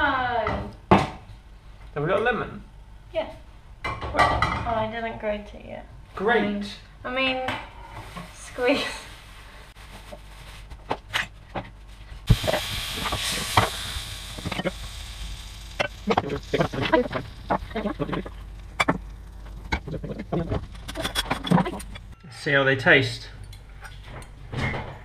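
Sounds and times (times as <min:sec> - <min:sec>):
batter sizzling in frying pan: 0:12.2 - 0:20.9
clatter of plates and cutlery: 0:20.8 - 0:22.1.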